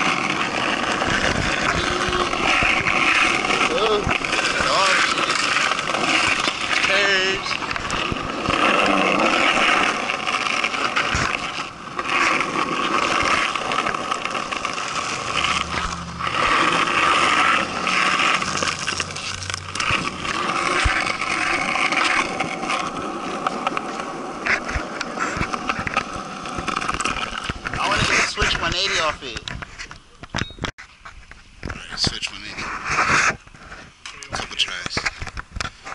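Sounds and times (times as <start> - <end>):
skateboard wheels rolling on asphalt: 0.0 - 35.9.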